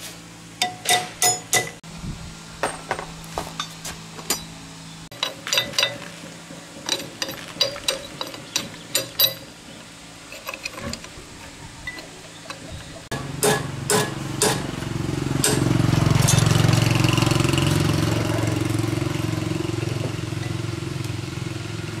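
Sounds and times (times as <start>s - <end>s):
hand tools clinking on metal: 0.6s - 1.8s, 3.6s - 9.6s, 15.4s - 16.6s, 19.8s - 20.8s.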